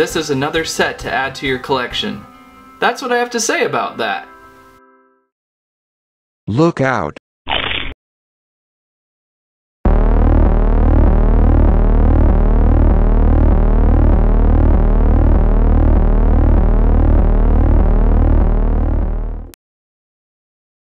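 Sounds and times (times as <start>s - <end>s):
gliding synthesizer tones: 9.9s - 19.6s
low synthesizer drone: 9.9s - 19.6s.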